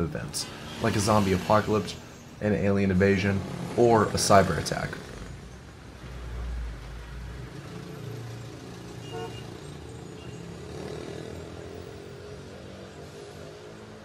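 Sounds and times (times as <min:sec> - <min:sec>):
urban hum: 0:00.0 - 0:14.0
bus rumbling past: 0:03.3 - 0:14.0.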